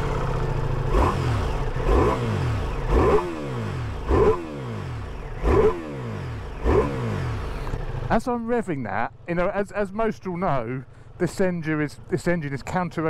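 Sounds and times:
motorcycle engine revving: 0.0s - 8.8s.

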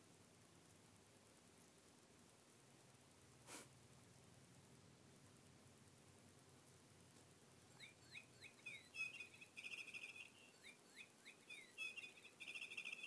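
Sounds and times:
bird song whistles and trill: 7.7s - 13.0s.

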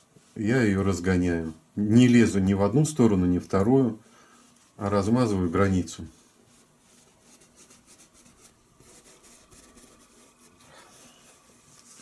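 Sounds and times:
paintbrush rubbing on canvas: 4.4s - 12.0s.

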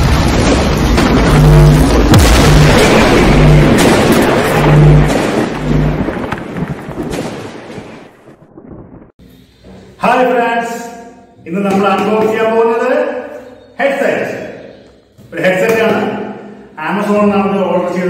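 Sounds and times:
rumbling boom with deep pulses: 0.0s - 9.2s.

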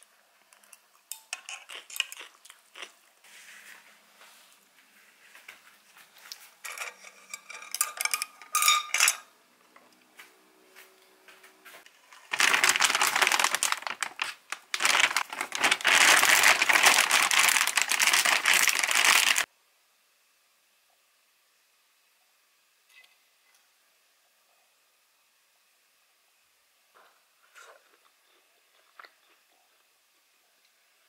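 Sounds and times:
chopsticks clinking against pot: 6.7s - 9.3s
plastic bag crinkling: 11.9s - 19.5s.

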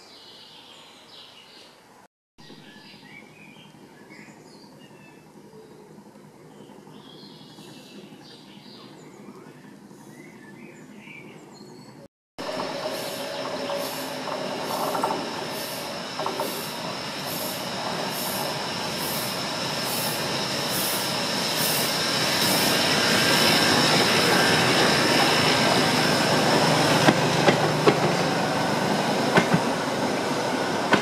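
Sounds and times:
faint birdsong: 0.0s - 20.8s
steam locomotive chuffing: 12.4s - 31.0s
wheels squealing: 12.4s - 31.0s.

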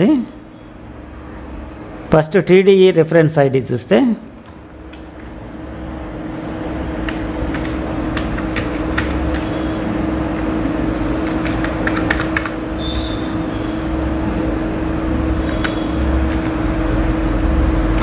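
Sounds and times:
steady hum with low rumble: 0.0s - 18.0s
keyboard typing clicks: 7.0s - 9.6s, 11.1s - 12.6s, 15.4s - 16.6s.

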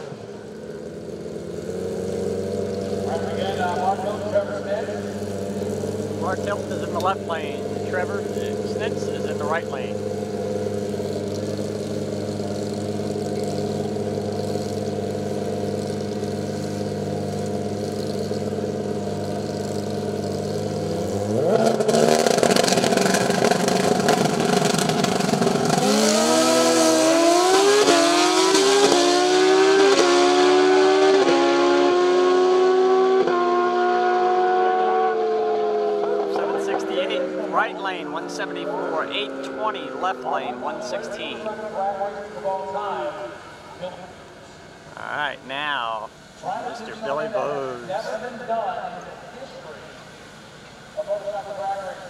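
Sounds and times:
motorcycles idling: 0.0s - 28.9s, 35.1s - 52.0s
motorcycles accelerating through upshifts: 0.0s - 48.4s
motorcycles revving: 0.0s - 52.0s.

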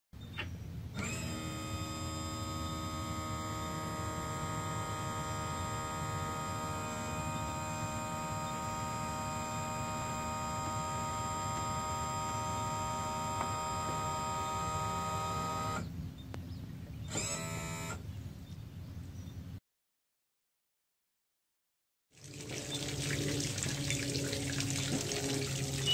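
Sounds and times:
electric pump whining: 0.8s - 16.0s, 17.0s - 18.1s, 22.2s - 25.9s.

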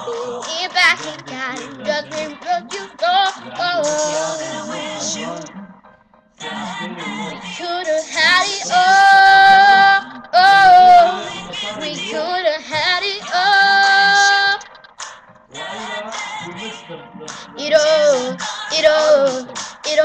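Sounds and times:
woman singing: 0.0s - 5.5s, 7.5s - 14.7s, 17.6s - 20.0s
karaoke backing track: 0.0s - 20.0s.

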